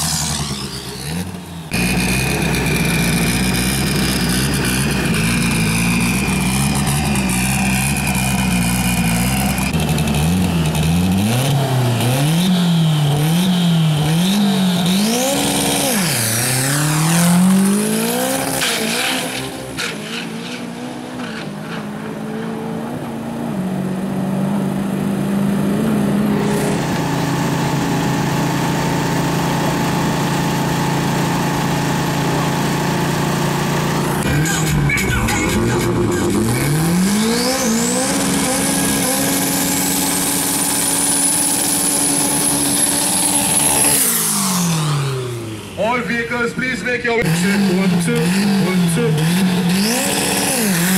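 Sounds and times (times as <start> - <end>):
engine idling: 0.0 - 11.3
race truck engine revving: 0.0 - 50.9.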